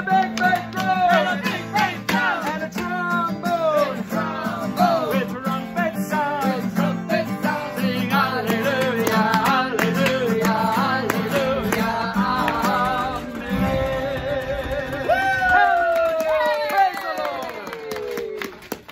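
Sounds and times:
acoustic guitar strumming: 0.0s - 15.1s
voices singing wordlessly: 0.0s - 15.2s.

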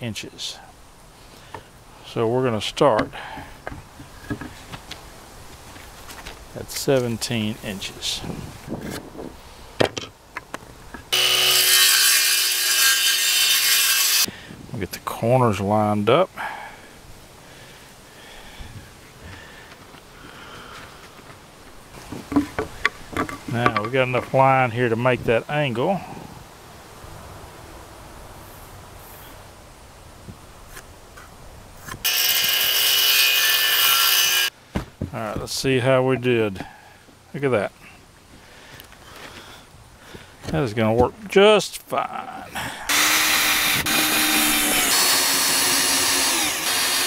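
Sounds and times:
circular saw cutting wood: 11.1s - 14.3s, 32.0s - 34.5s, 42.9s - 47.0s
wood knocking: 22.0s - 24.3s.

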